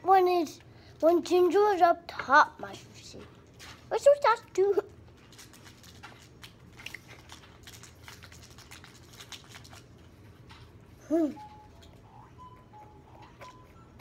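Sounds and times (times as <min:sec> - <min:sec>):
child chewing food: 0:03.1 - 0:04.0, 0:04.8 - 0:14.0.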